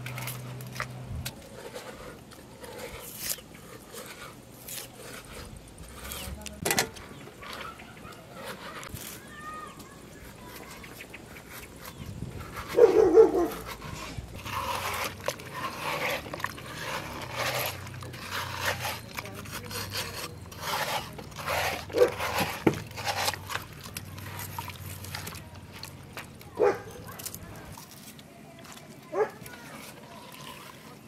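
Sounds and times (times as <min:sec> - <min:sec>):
spoon scraping watermelon flesh: 0:00.0 - 0:31.0.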